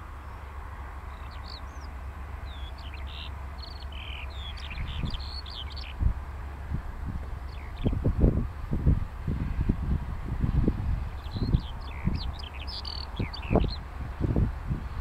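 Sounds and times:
skylark singing: 0:02.5 - 0:06.0, 0:07.5 - 0:08.0, 0:11.2 - 0:13.8
wind rumble on microphone: 0:02.5 - 0:15.0.

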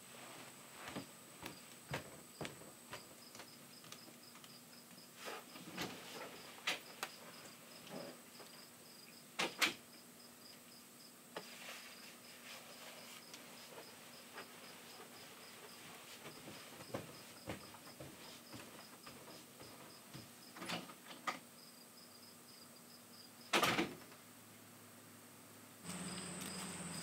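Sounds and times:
crickets chirping: 0:21.6 - 0:23.5, 0:25.9 - 0:27.0.

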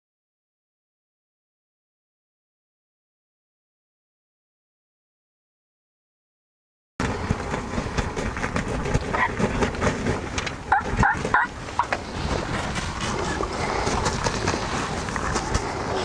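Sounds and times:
background rustle: 0:07.0 - 0:16.0
turkey yelps: 0:10.7 - 0:11.9.

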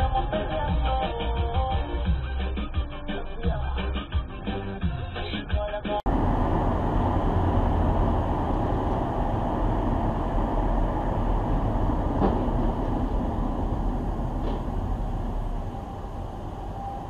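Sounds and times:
car road and engine rumble: 0:06.1 - 0:17.0.

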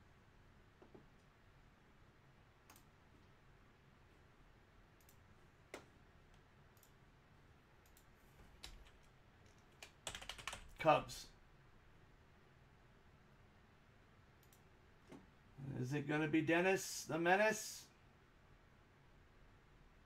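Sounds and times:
faint clicks: 0:02.6 - 0:03.4, 0:05.0 - 0:07.0, 0:07.8 - 0:10.0, 0:14.4 - 0:15.2.

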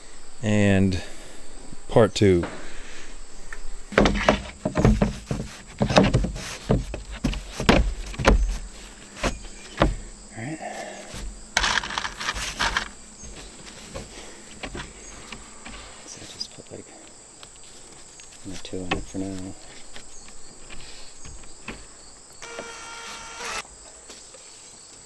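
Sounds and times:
crickets droning: 0:00.0 - 0:25.0
knocks and taps on plywood: 0:04.0 - 0:08.6.

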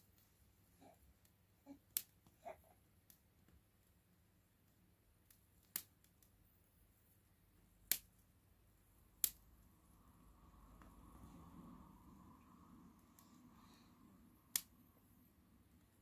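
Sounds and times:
fir branches burning: 0:14.4 - 0:14.7
sharp fire crackles: 0:14.5 - 0:14.7.

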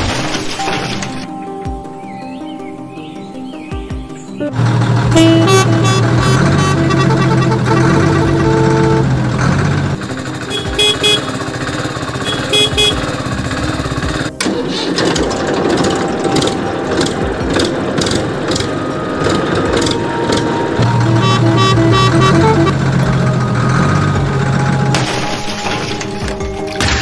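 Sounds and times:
music: 0:00.0 - 0:27.0
truck engine running: 0:04.5 - 0:26.7
truck horn beeps: 0:04.8 - 0:13.4, 0:20.0 - 0:24.8.

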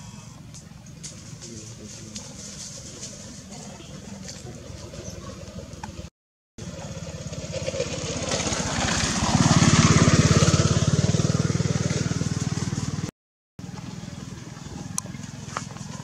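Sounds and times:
vehicle engine running: 0:00.6 - 0:16.0.

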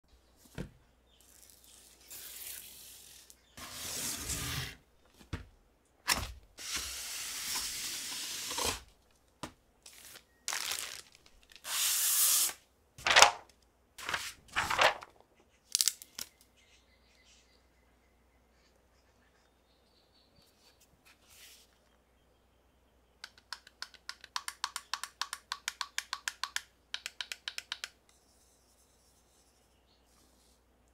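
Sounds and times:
cardboard box scraping: 0:03.6 - 0:04.8
plastic wrapping crinkling: 0:09.9 - 0:11.6, 0:14.0 - 0:15.1.

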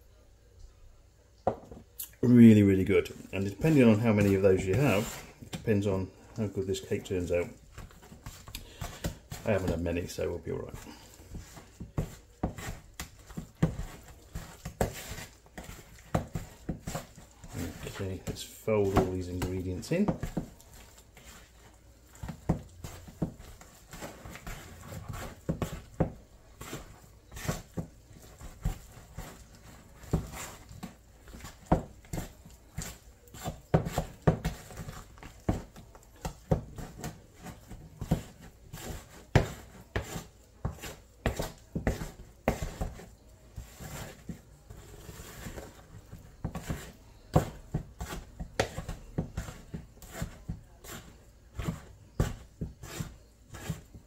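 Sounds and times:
spoon knocking and scraping bowl: 0:10.7 - 0:44.4.

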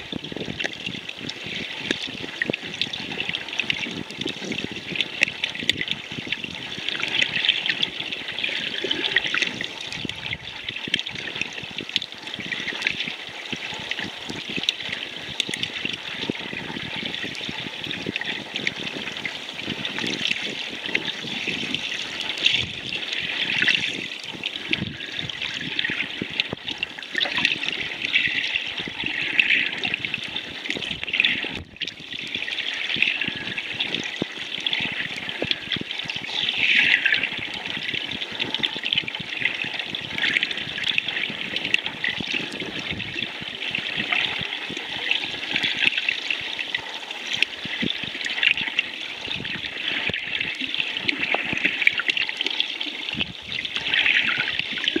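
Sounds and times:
underwater sea water wash: 0:00.0 - 0:55.0
small underwater clicks: 0:00.5 - 0:16.3.

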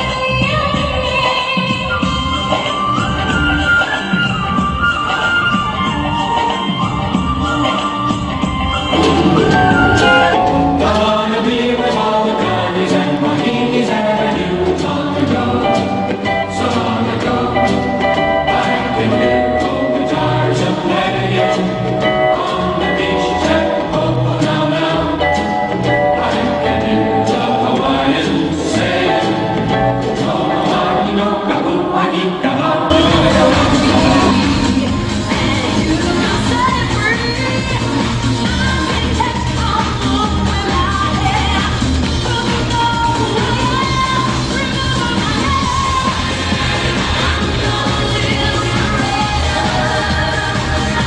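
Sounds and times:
music with singing: 0:00.0 - 0:51.0.

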